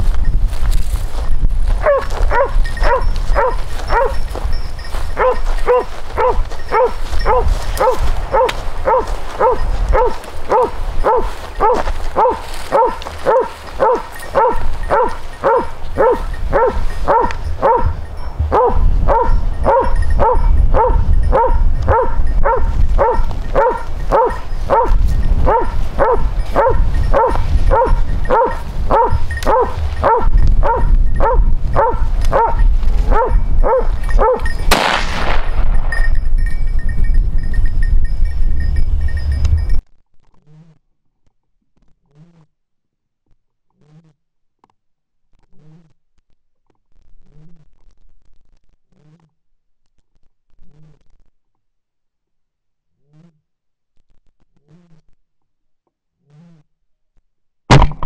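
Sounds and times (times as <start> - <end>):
dog barking: 1.8 - 4.3, 5.0 - 34.6.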